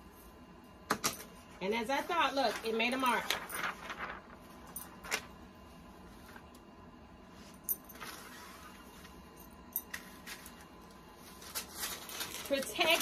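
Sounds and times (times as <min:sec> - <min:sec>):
paper rustling: 0:02.0 - 0:05.4, 0:10.0 - 0:13.0.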